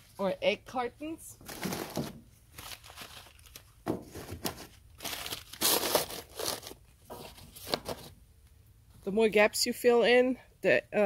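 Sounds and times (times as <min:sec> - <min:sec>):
newspaper crinkling and rustling: 0:01.4 - 0:08.2.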